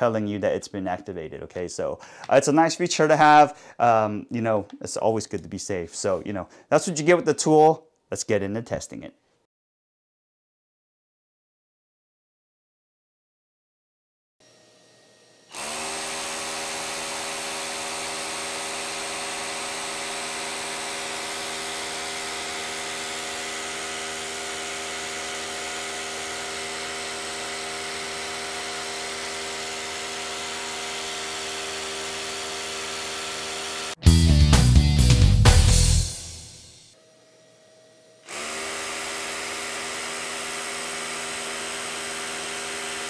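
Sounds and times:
rotary hammer drilling into concrete: 15.5 - 34.0, 38.2 - 43.0.

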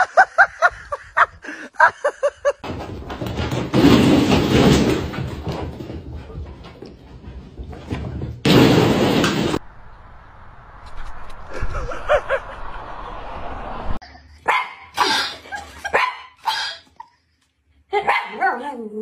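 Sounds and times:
dog barking: 14.4 - 15.3, 15.9 - 16.8, 18.0 - 18.8.

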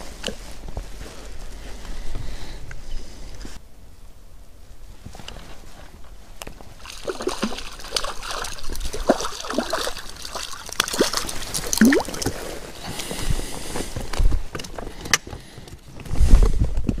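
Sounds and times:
fish splashing at water surface: 6.8 - 12.4
water sloshing: 6.8 - 12.7.

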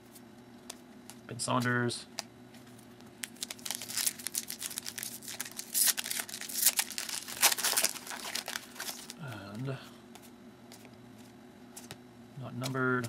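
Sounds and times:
foil wrapper crinkling: 3.2 - 9.2.

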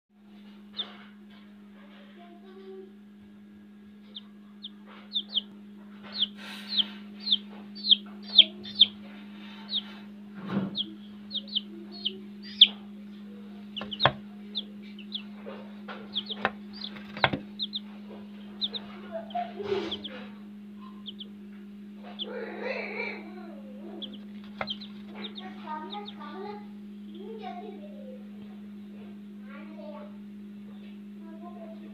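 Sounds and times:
low hum: 0.2 - 29.5
chicks peeping: 0.3 - 1.1, 4.0 - 27.2.

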